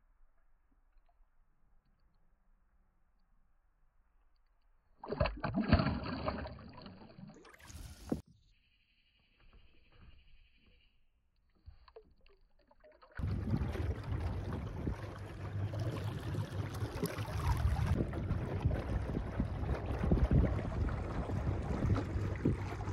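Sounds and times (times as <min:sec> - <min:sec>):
choppy water around boat: 0:05.0 - 0:08.2, 0:11.5 - 0:22.9
gusty wind on microphone: 0:13.2 - 0:15.8, 0:17.3 - 0:22.9
muffled underwater sound: 0:13.2 - 0:22.9.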